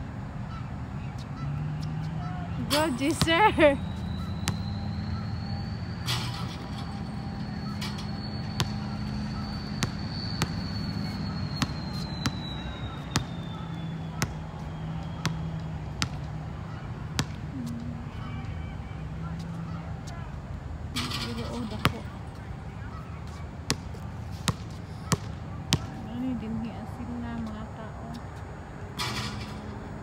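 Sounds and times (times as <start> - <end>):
basketball bouncing on concrete: 3.0 - 3.7, 8.6 - 8.9, 9.7 - 10.6, 11.5 - 13.3, 14.2 - 14.4, 15.2 - 16.4, 17.2 - 18.0, 23.7 - 26.0.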